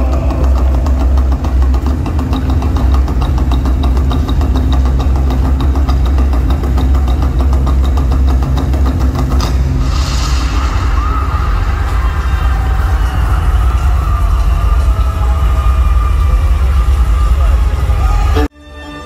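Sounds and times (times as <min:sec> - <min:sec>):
deep low rumble: 0:00.0 - 0:18.4.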